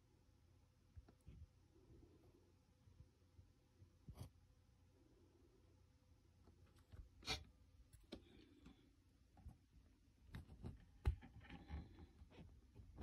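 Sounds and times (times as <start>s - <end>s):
faint clicks and taps: 7.9s - 13.0s.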